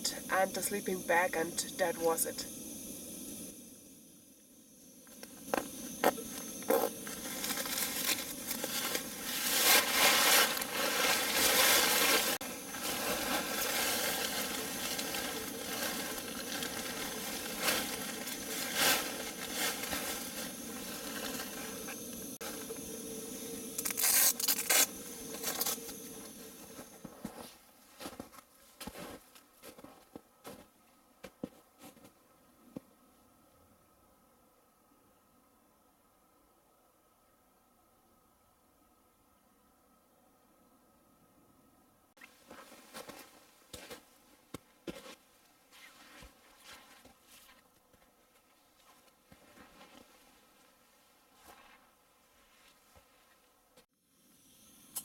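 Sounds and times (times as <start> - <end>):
nylon bag rustling: 6.7 - 22.6, 23.8 - 25.9.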